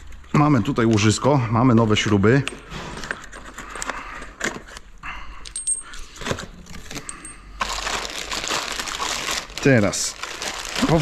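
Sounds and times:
metal parts clinking and rattling: 5.4 - 7.8.

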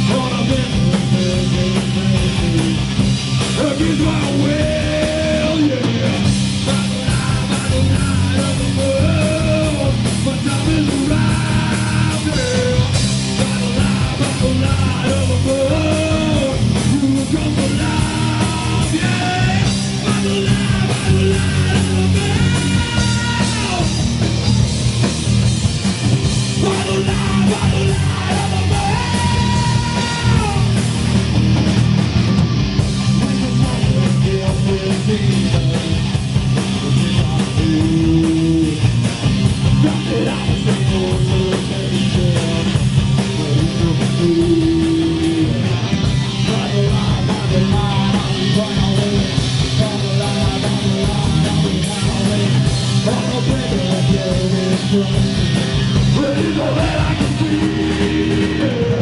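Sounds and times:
bass guitar: 0.0 - 59.0
distorted electric guitars: 0.0 - 59.0
drums: 0.0 - 59.0.

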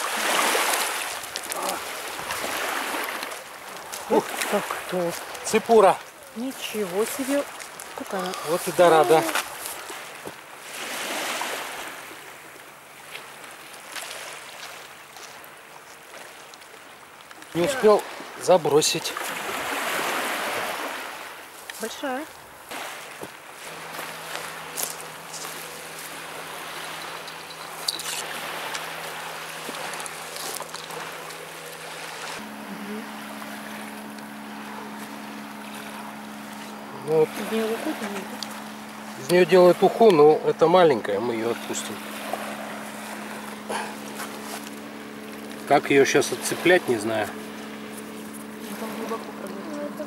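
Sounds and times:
small waves washing on beach: 0.0 - 50.0
low hum: 23.4 - 50.0.

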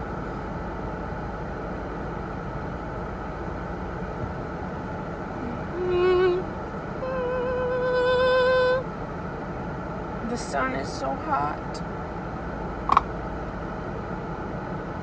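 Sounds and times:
car cabin rumble and hiss: 0.0 - 15.0
woman singing notes: 5.4 - 8.8.

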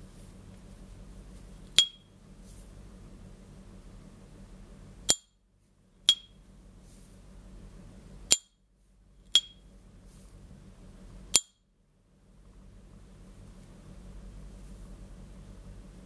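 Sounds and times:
high metallic ringing ping: 1.8 - 2.1, 5.1 - 5.3, 6.1 - 6.4, 9.4 - 9.6, 11.4 - 11.6.

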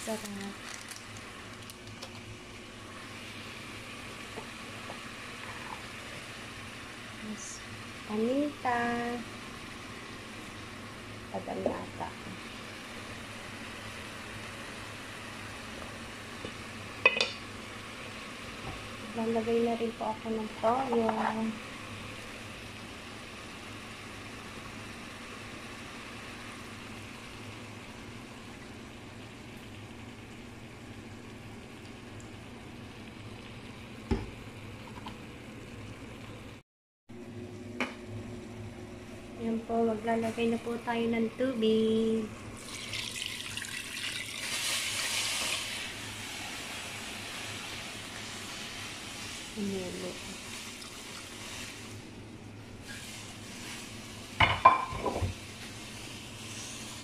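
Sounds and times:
food sizzling in a pot: 0.0 - 36.6, 39.4 - 57.0
water pouring into pot: 42.6 - 49.6, 50.2 - 52.0
steady hiss: 43.6 - 57.0.

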